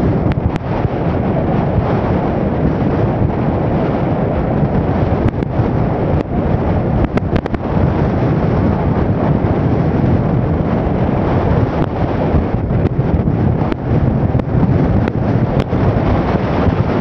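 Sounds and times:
motorbike riding noise: 0.0 - 17.0
wind rushing over microphone: 0.0 - 17.0.

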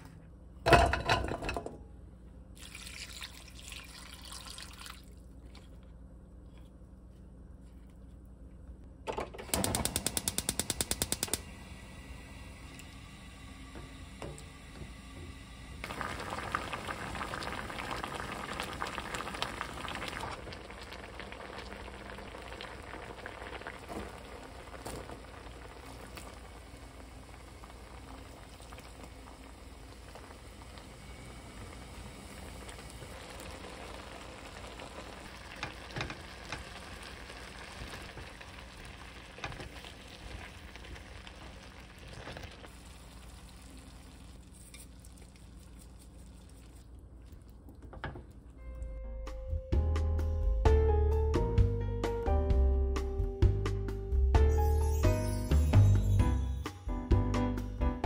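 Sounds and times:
water bubbling in a pan: 2.6 - 5.3, 12.0 - 48.6.

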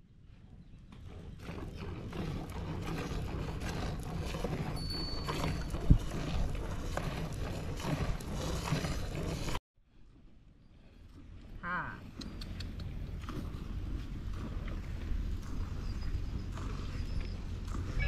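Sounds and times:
wind on microphone: 1.4 - 8.8.

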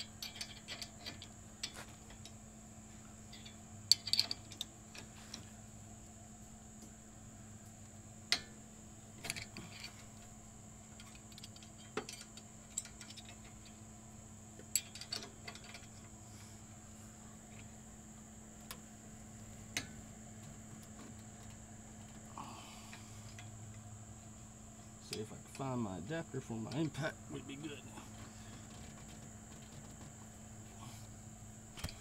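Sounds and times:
faint steady hum: 0.0 - 32.0
metal tools clinking: 0.1 - 1.8.

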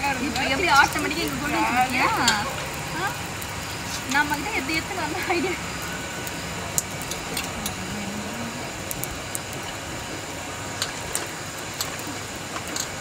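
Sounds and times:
steady background noise: 0.0 - 13.0
metal steamer plates clicking: 10.8 - 13.0.

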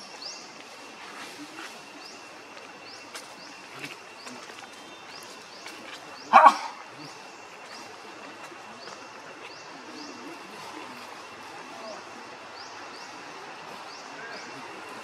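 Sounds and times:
dog bark: 6.3 - 6.8.

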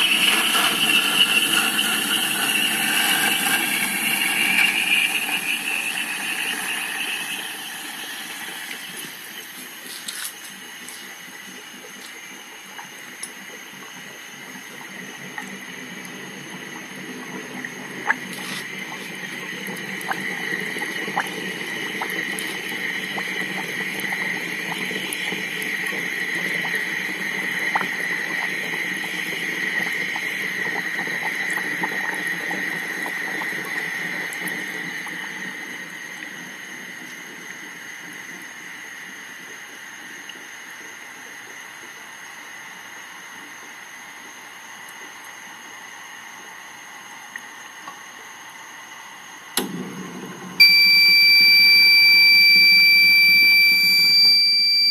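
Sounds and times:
steam venting hiss: 0.0 - 40.9.

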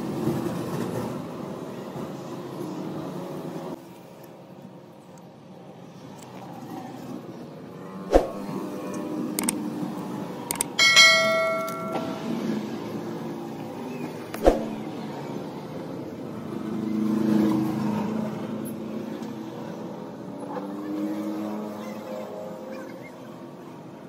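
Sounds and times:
click: 8.9 - 9.6, 10.5 - 10.8
bright bell-like chime: 10.8 - 12.5.

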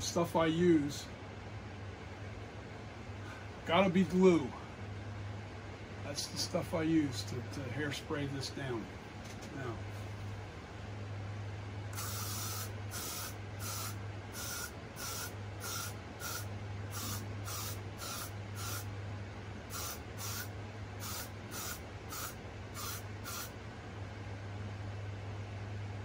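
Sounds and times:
steady low hum: 0.0 - 26.0
aerosol hairspray hissing: 12.0 - 18.9, 19.7 - 23.5.

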